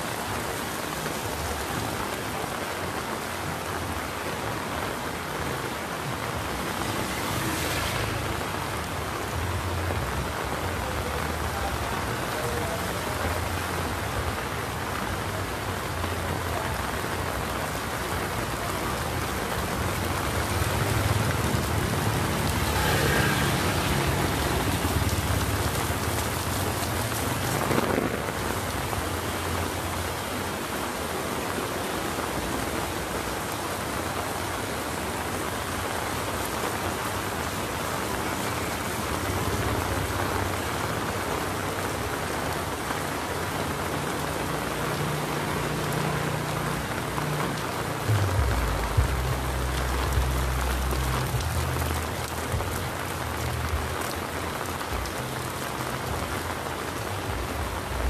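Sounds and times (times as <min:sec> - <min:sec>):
heavy rain on street: 0:00.0 - 0:58.0
rain pattering on umbrella: 0:00.0 - 0:58.0
low rumble: 0:48.1 - 0:50.6.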